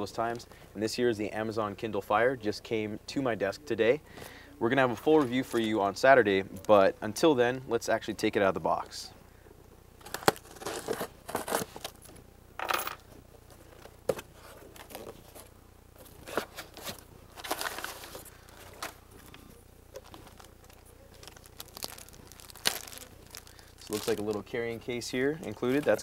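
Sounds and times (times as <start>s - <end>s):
cardboard box being opened: 10.0s - 12.0s, 14.1s - 19.0s
packing paper rustling: 10.0s - 12.2s, 13.6s - 26.0s
plastic sleeve crinkling: 10.0s - 12.2s, 13.6s - 26.0s.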